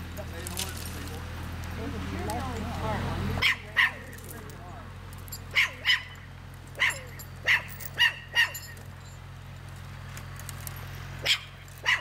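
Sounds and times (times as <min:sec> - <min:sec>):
dog barking: 0:03.4 - 0:04.0, 0:05.5 - 0:06.2, 0:06.8 - 0:08.6, 0:11.2 - 0:12.0.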